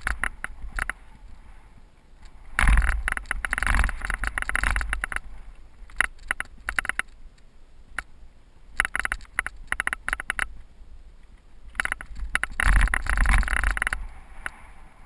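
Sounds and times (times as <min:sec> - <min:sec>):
bike rattling over bumps: 0:00.0 - 0:01.4, 0:02.2 - 0:07.2, 0:08.8 - 0:10.6, 0:11.7 - 0:14.6
wind rumbling on microphone: 0:00.0 - 0:15.0.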